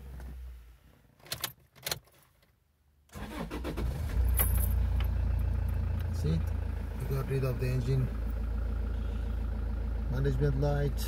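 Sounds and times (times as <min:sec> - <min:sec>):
diesel engine cranking and idling: 0:03.1 - 0:11.0.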